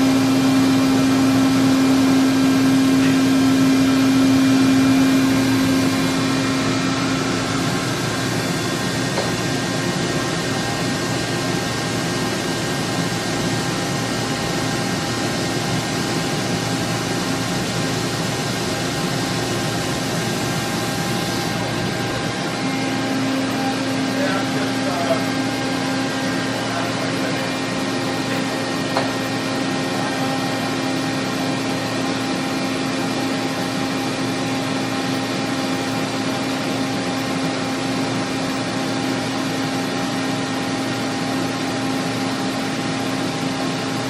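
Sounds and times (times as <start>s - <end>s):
boring mill machine hum: 0.0s - 44.0s
strong low hum: 2.2s - 28.8s.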